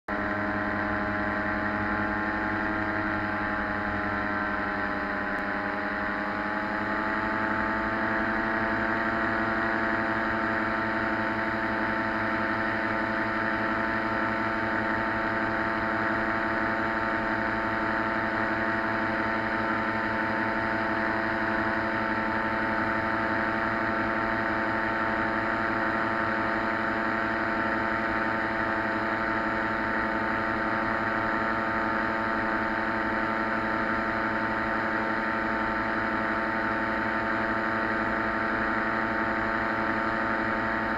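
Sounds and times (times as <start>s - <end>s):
propeller engine running: 0.1s - 40.9s.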